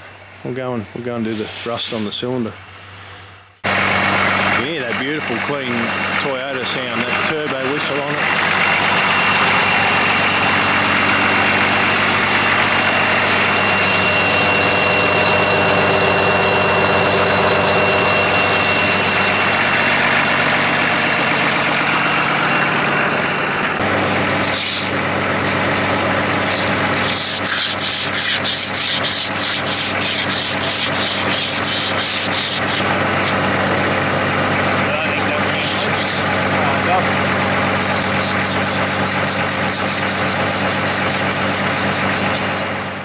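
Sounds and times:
diesel engine idling: 0:03.6 - 0:43.0
scrubbing rust by hand: 0:24.2 - 0:25.0, 0:25.6 - 0:33.5, 0:35.3 - 0:36.5, 0:37.7 - 0:42.7.

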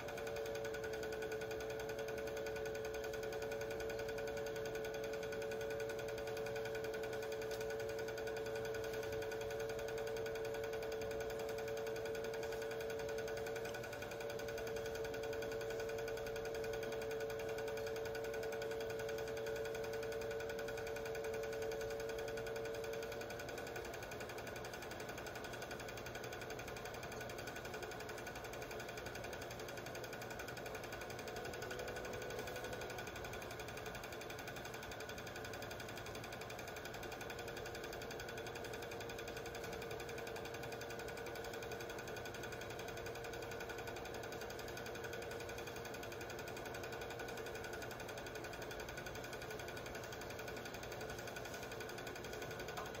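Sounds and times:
faint steady hum: 0:00.0 - 0:53.0
film projector clattering: 0:00.0 - 0:53.0.

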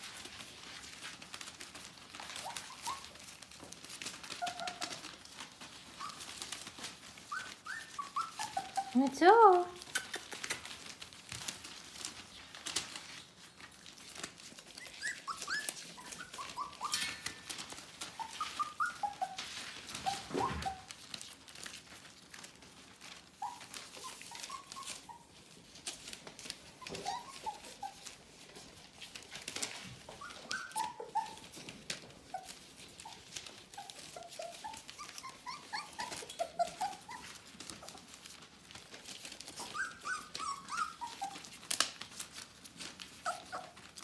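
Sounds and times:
paws scratching newspaper: 0:00.0 - 0:44.0
puppies whimpering and yipping: 0:00.1 - 0:13.2, 0:13.8 - 0:21.2, 0:23.1 - 0:44.0.

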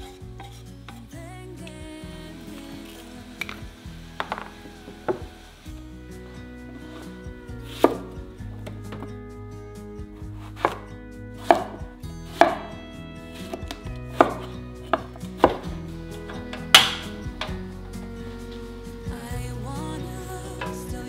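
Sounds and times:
knife striking cutting board: 0:11.4 - 0:11.8, 0:12.4 - 0:12.7.

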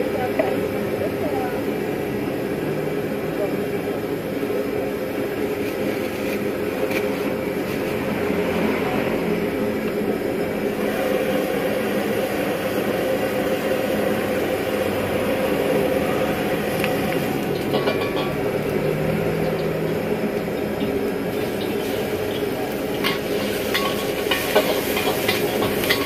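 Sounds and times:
gas burner rushing: 0:00.0 - 0:26.0.

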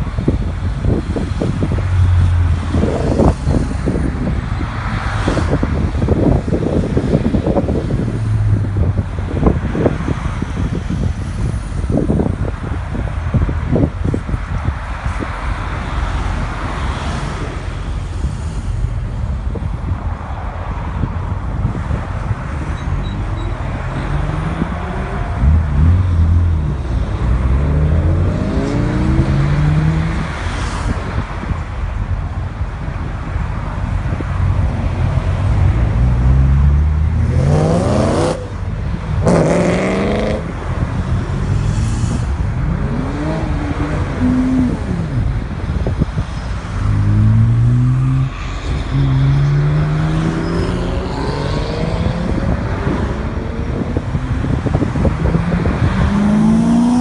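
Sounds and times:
cars accelerating past: 0:22.3 - 0:31.6, 0:33.8 - 0:57.0
car engine revving loudly: 0:24.0 - 0:30.3, 0:35.9 - 0:38.6, 0:39.2 - 0:40.6, 0:55.2 - 0:57.0.

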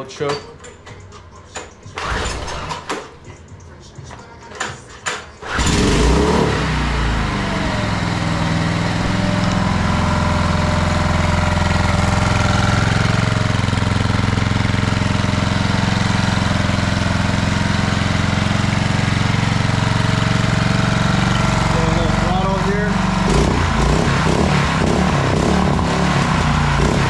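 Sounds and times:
outboard motor running: 0:05.6 - 0:27.0.

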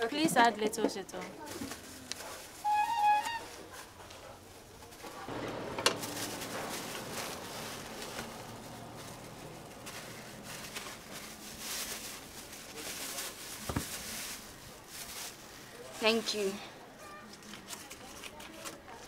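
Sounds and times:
outdoor background noise: 0:00.0 - 0:19.0
plastic bag handling: 0:04.8 - 0:15.4.

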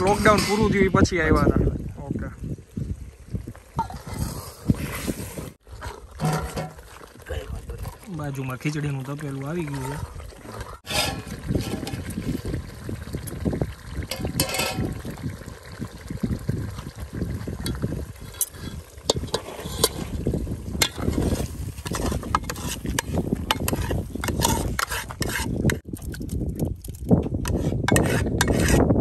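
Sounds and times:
ladle scraping pot: 0:00.0 - 0:00.9, 0:03.8 - 0:12.6, 0:14.0 - 0:15.8, 0:17.6 - 0:25.8, 0:27.4 - 0:28.9
liquid sloshing in a pot: 0:02.9 - 0:28.6
ladle clinking against pot: 0:14.1 - 0:14.9.

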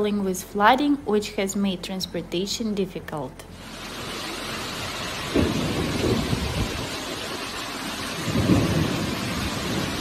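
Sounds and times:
heavy rain hissing: 0:03.5 - 0:10.0
low rumbling wind surges: 0:03.6 - 0:10.0.

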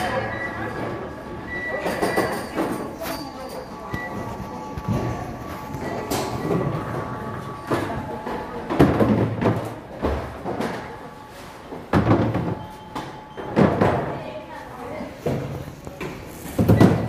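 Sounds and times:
murmur of voices: 0:00.0 - 0:11.3.

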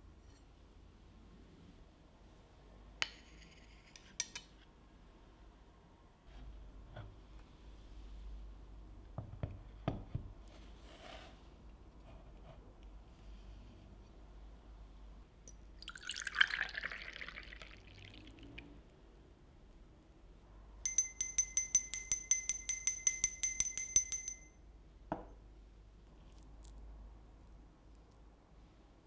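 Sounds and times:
bell set down with a knock: 0:20.9 - 0:24.5
hand bell ringing: 0:20.9 - 0:24.6.

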